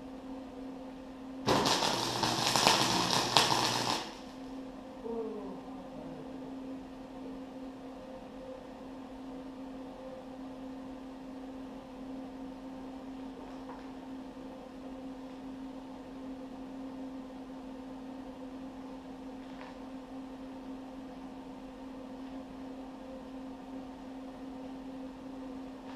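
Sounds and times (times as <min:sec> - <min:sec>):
welding machine humming: 0:01.4 - 0:04.5
falling whine: 0:01.5 - 0:04.4.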